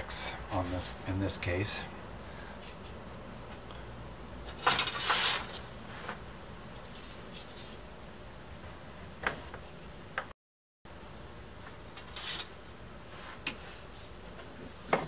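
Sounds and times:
wood scraping and rustling: 0:04.5 - 0:06.2.

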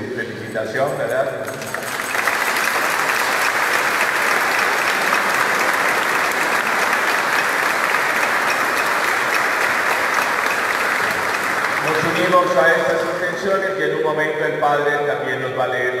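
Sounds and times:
crowd clapping: 0:01.4 - 0:13.7.

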